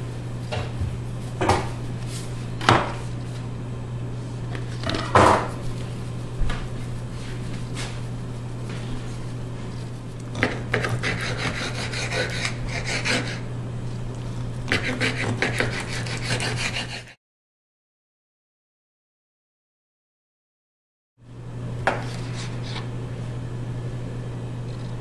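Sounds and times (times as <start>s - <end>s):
steady low hum: 0.0s - 17.2s, 21.2s - 25.0s
knife sawing through raw chicken: 9.8s - 13.5s, 14.7s - 17.2s.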